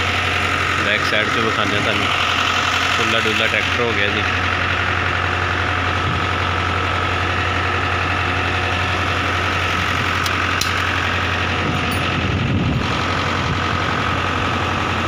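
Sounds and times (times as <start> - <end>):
tractor engine idling: 0.0 - 15.0.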